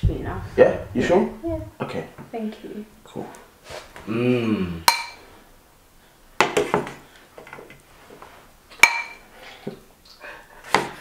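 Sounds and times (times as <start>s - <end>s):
metal utensil clinking on bowls: 8.8s - 9.2s.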